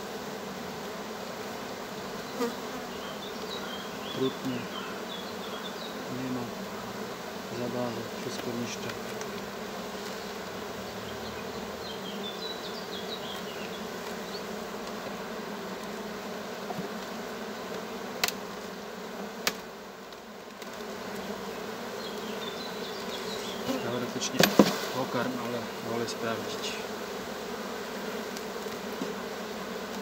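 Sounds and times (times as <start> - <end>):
bees buzzing: 0.0 - 30.0
sharp knocks: 24.3 - 24.8.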